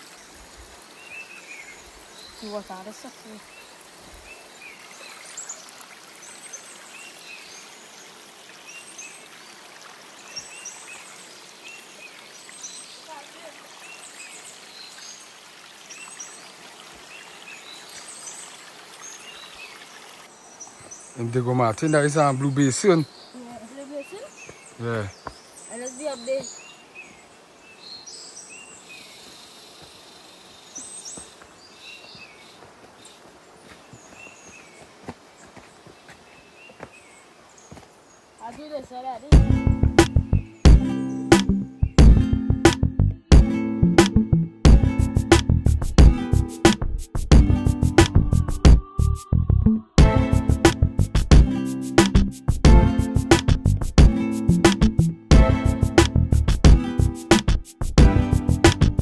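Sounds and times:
high insect hiss: 0.0s - 20.9s, 28.3s - 33.8s
stream running over rocks: 0.0s - 48.8s
forest birds calling: 0.0s - 56.0s
footsteps on dirt trail: 24.4s - 25.4s, 31.0s - 39.4s.

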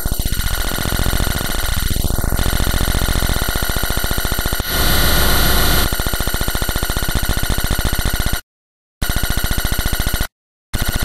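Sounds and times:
harsh electronic buzzing: 0.0s - 6.9s.

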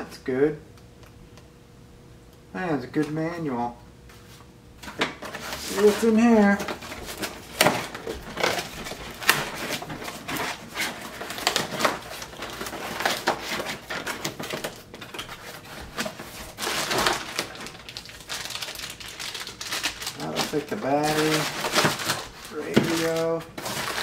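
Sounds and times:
plastic and cardboard crinkling: 4.8s - 24.0s.

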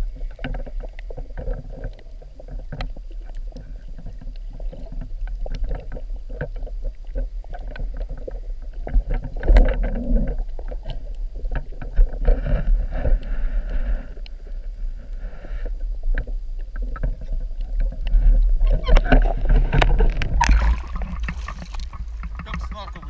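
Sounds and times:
clicks and crackles: 0.0s - 23.0s
underwater rumble: 0.0s - 23.0s.

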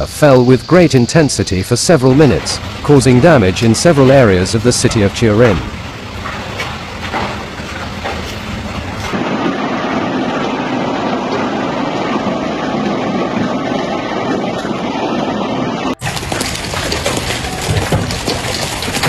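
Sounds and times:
hail hammering on cars and pavement: 1.8s - 13.6s, 16.0s - 19.0s.

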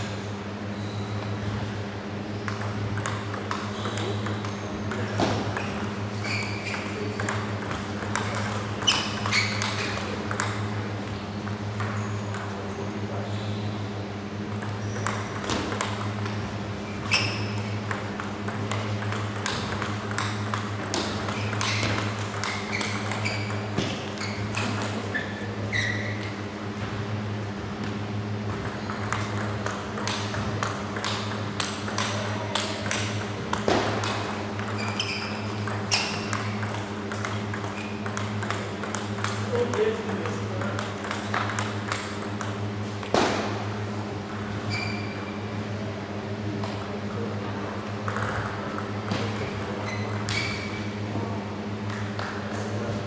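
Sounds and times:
steady low hum: 0.0s - 53.0s
table tennis ball clicking: 2.4s - 12.6s, 14.5s - 25.0s, 28.5s - 45.3s, 48.1s - 50.9s.

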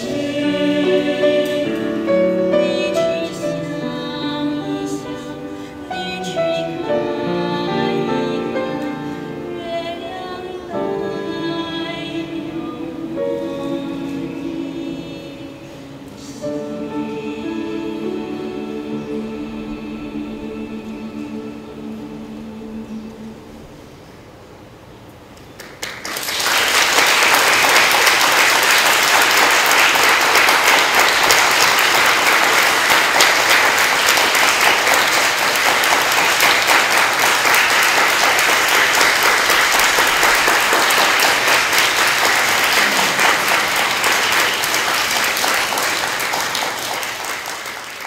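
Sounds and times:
audience applauding: 25.4s - 48.0s.

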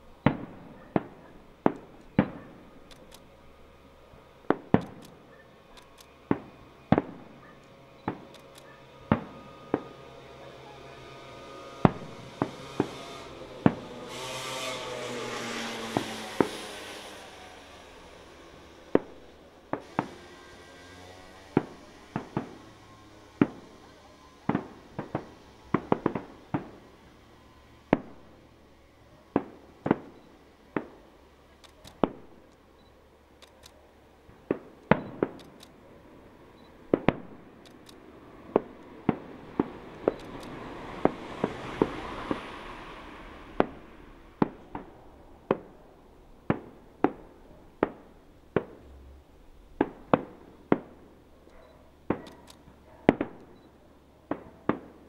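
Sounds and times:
hissing swell: 0.0s - 31.4s, 36.0s - 48.2s
firework shells bursting: 0.2s - 10.2s, 11.0s - 28.5s, 29.3s - 32.7s, 34.4s - 35.8s, 36.7s - 49.1s, 49.7s - 53.6s.

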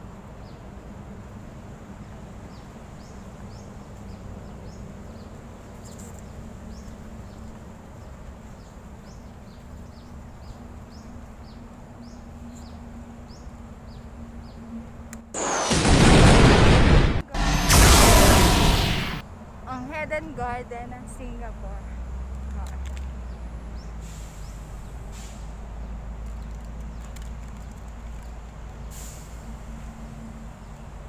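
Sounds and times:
small birds chirping: 2.0s - 14.7s, 25.7s - 28.9s
sudden loud burst of noise: 15.4s - 19.2s.

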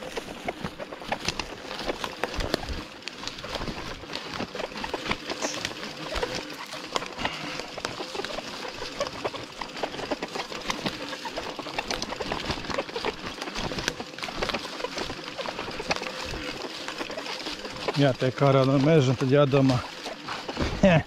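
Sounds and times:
bicycle clattering on rough ground: 0.0s - 21.0s.

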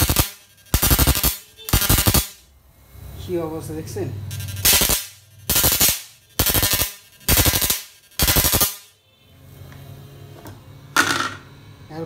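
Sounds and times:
electric arcing bursts: 0.0s - 8.9s.

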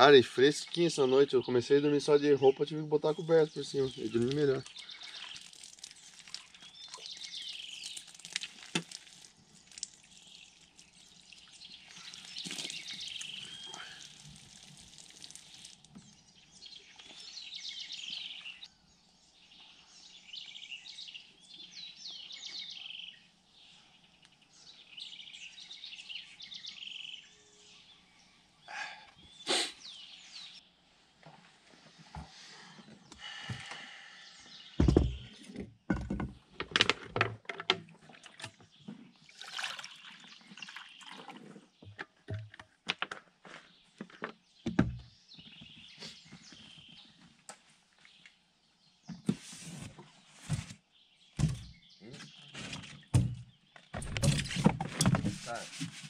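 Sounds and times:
birds singing and chirping: 0.0s - 30.8s, 32.3s - 36.7s, 38.2s - 42.6s, 43.2s - 47.4s, 48.0s - 55.9s
faint outdoor background noise: 0.0s - 56.0s
loud thump: 34.8s - 35.3s.

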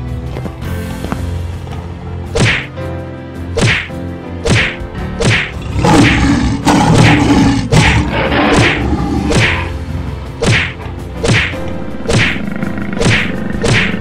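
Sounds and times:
faint background music: 0.0s - 14.0s
sharp swishing hits: 2.3s - 2.7s, 3.6s - 6.2s, 6.9s - 9.8s, 10.4s - 14.0s.

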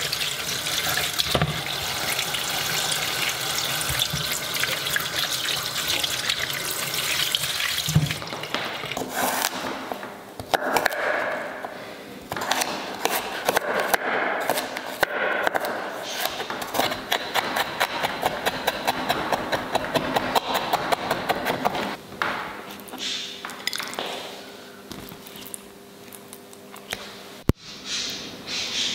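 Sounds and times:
tap water running: 0.0s - 9.0s
knife chopping on wooden board: 12.3s - 21.9s.

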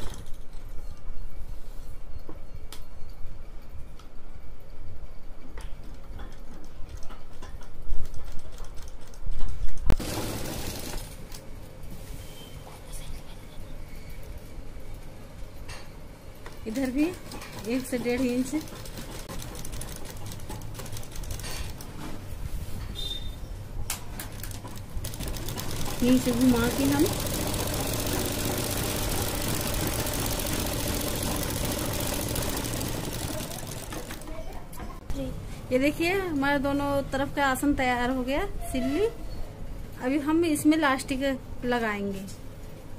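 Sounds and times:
sewing machine stitching: 10.0s - 11.2s, 16.7s - 22.0s, 24.3s - 34.4s.

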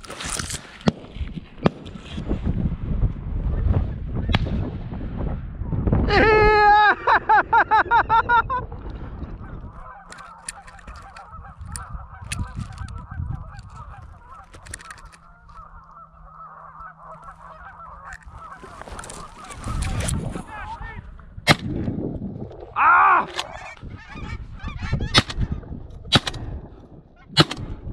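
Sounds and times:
geese honking: 9.4s - 21.1s, 23.4s - 25.6s.

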